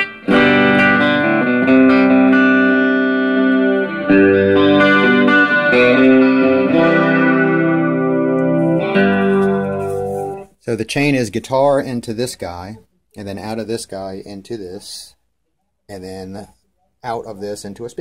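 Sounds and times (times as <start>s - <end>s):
electric guitar playing clean chords: 0.0s - 10.5s.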